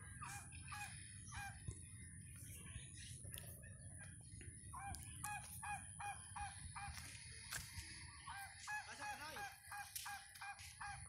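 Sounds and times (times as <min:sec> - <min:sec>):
fowl calling: 0:00.1 - 0:01.7, 0:04.7 - 0:11.0.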